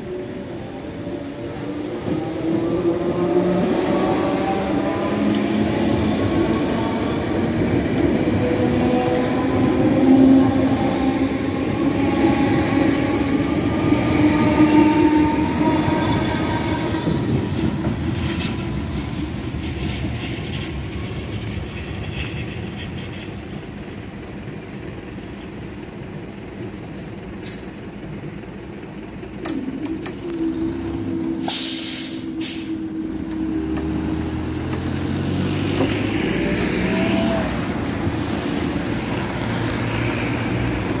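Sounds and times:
road vehicles driving off: 0.0 - 41.0
electric train motors whining: 0.1 - 18.2, 28.1 - 41.0.

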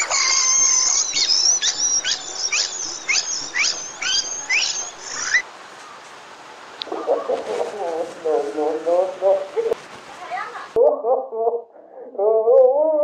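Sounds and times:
squeaky falling chirps: 0.0 - 5.4.

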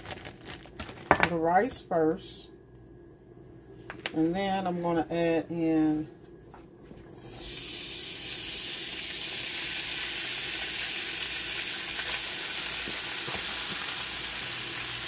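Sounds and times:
rice sizzling in skillet: 7.2 - 15.0.

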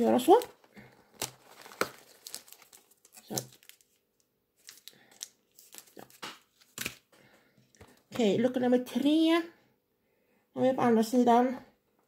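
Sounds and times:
cardboard crinkling and rustling: 0.0 - 8.1.

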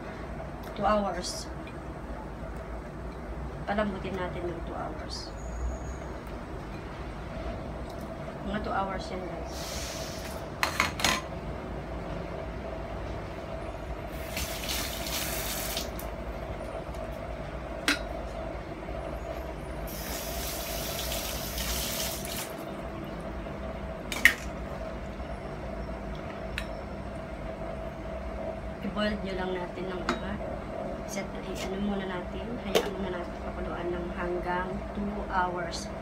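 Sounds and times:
steady hum: 0.0 - 36.0
water running: 14.1 - 16.1, 19.9 - 22.7.

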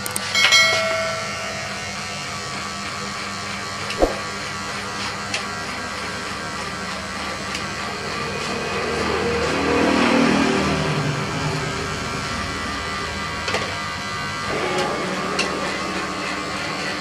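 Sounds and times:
falling blip: 4.0 - 4.4.

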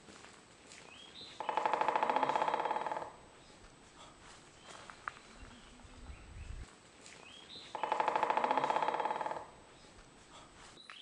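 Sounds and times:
woodpecker drumming on wood: 1.2 - 3.4, 7.6 - 9.7.

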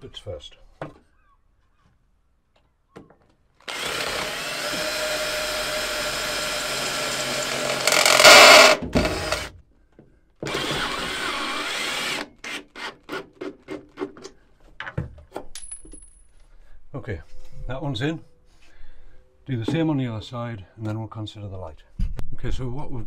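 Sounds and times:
cordless drill driving screws: 3.6 - 9.5, 10.4 - 13.3.

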